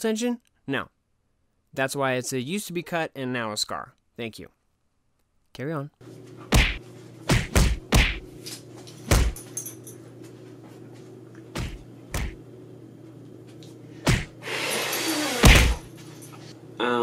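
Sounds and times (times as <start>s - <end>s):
steady low hum: 6.0s - 17.0s.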